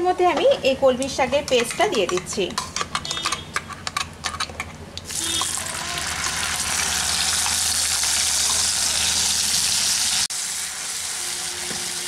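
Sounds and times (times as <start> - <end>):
paste sizzling in hot oil: 5.1 - 12.0.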